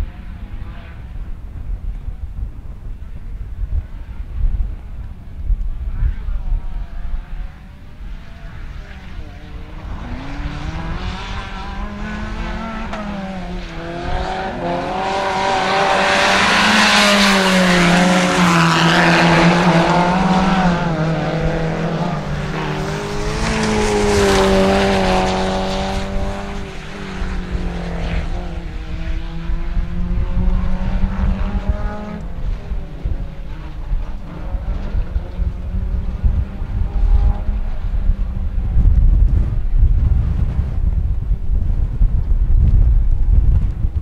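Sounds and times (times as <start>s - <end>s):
racing car engines revving: 6.0s - 39.7s.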